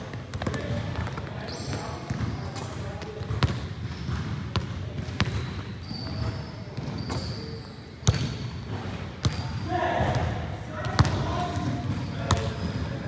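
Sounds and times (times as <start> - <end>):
basketball bouncing on hard surfaces: 0.1 - 1.4, 2.0 - 2.4, 3.0 - 7.2, 8.0 - 8.3, 10.9 - 12.9.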